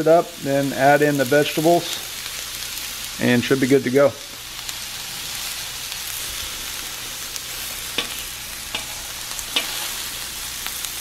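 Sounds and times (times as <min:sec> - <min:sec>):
meat sizzling in oil: 0:00.0 - 0:11.0
knife and fork scraping griddle: 0:08.0 - 0:10.1.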